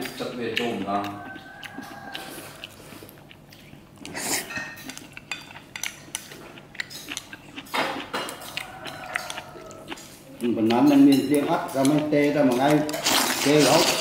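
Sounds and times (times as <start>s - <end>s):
cutlery clinking on dishes: 4.4s - 9.4s.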